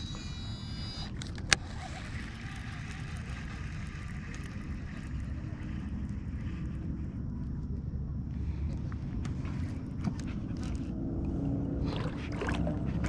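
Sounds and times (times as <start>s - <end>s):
fishing reel click: 0.0s - 6.2s
fishing reel whirring: 0.0s - 7.2s.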